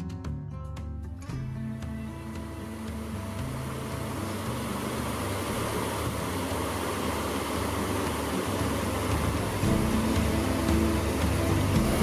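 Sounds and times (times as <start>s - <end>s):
fast creek rushing: 2.5s - 12.0s.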